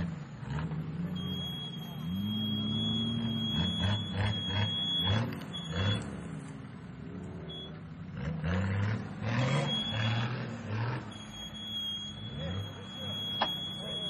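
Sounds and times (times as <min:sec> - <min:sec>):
off-road engine revving: 0:00.0 - 0:14.0
thin high tone: 0:11.1 - 0:14.0.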